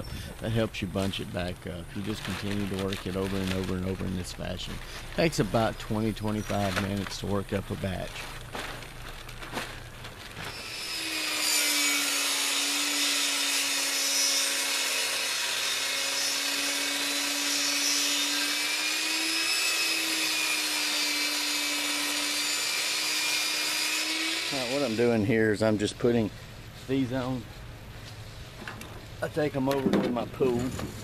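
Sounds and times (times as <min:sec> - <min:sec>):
table saw cutting wood: 0:10.5 - 0:25.2.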